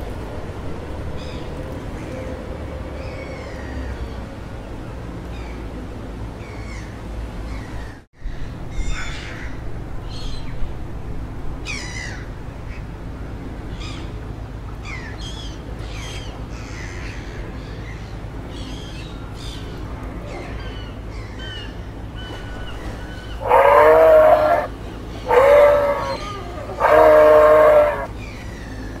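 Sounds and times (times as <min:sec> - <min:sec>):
songbirds chirping and singing: 0:14.9 - 0:29.0
loud drawn-out bird call: 0:22.9 - 0:28.4.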